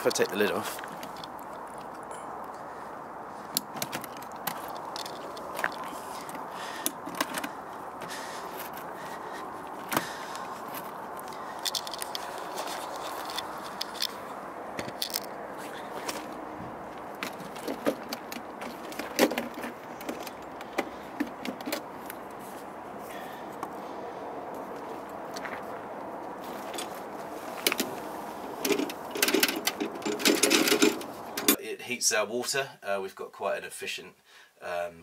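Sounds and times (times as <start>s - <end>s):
steady background noise: 0.0s - 32.4s
metal clicks knocks and scrapes: 10.7s - 14.2s, 14.8s - 15.3s, 27.6s - 31.6s.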